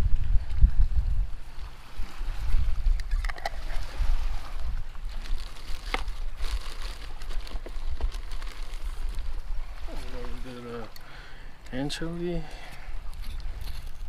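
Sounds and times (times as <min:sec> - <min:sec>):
plastic bag rustle: 0:01.8 - 0:10.8.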